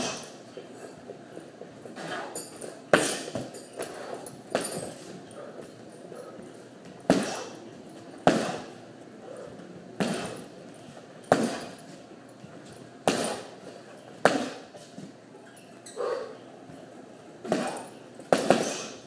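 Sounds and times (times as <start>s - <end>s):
punching bag being struck: 7.1s - 7.6s, 8.2s - 8.7s, 10.0s - 10.5s, 11.3s - 11.8s, 13.0s - 13.5s, 14.2s - 14.7s, 17.5s - 19.0s.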